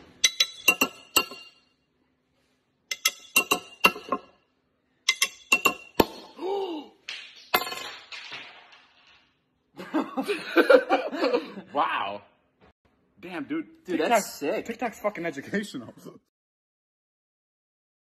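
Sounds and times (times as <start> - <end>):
glass bottle clinking: 0.1 - 1.7, 2.9 - 4.4, 5.1 - 6.3.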